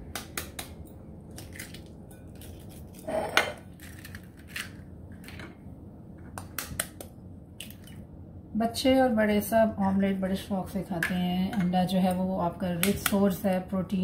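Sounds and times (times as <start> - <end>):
egg cracking: 0.1 - 5.4.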